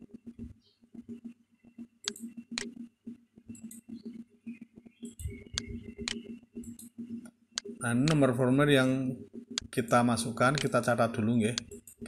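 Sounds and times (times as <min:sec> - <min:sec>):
faint low hum: 0:00.0 - 0:12.0
computer mouse clicks: 0:02.0 - 0:02.8, 0:03.5 - 0:08.3, 0:10.5 - 0:10.8.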